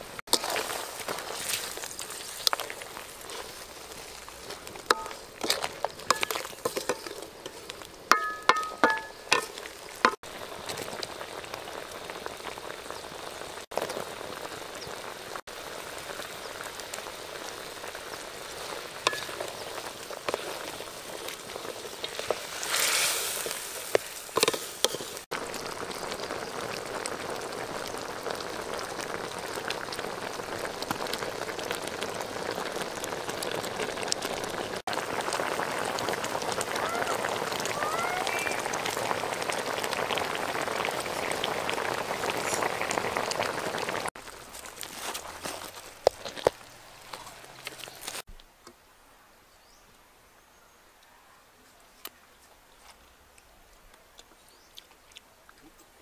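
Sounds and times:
sauce bubbling and sizzling: 0.0s - 48.3s
spatula knocking and scraping pan: 4.5s - 10.1s, 23.4s - 25.2s.

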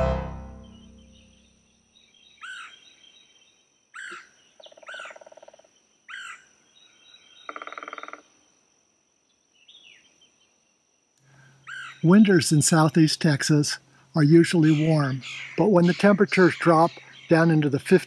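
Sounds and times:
bird chirping: 0.0s - 5.4s, 11.4s - 18.0s
faint insect hum: 0.8s - 18.0s.

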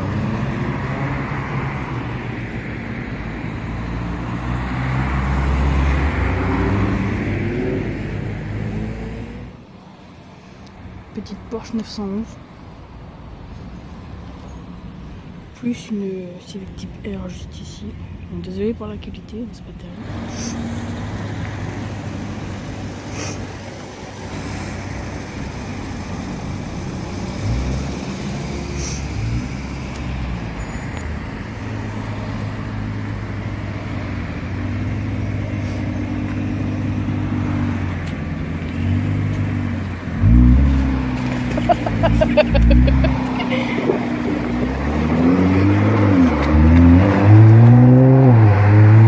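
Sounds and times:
car engine revving: 20.0s - 49.0s.

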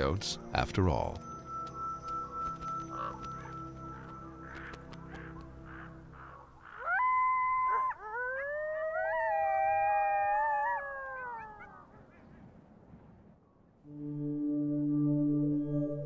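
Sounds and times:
coyotes howling: 2.7s - 12.4s.

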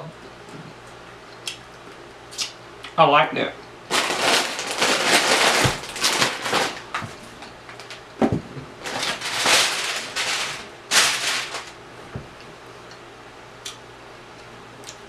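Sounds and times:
chewing and lip-smacking: 0.8s - 3.0s.

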